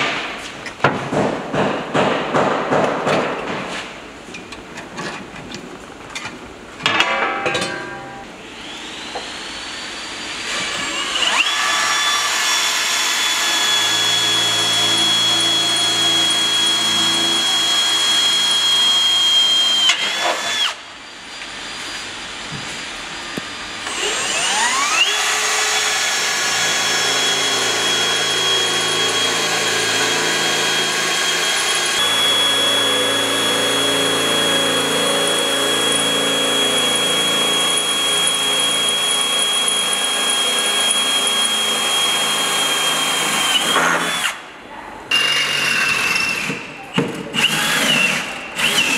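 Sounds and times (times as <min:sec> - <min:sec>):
cordless drill drilling into metal: 0:10.4 - 0:20.8, 0:23.8 - 0:44.4, 0:47.4 - 0:48.9.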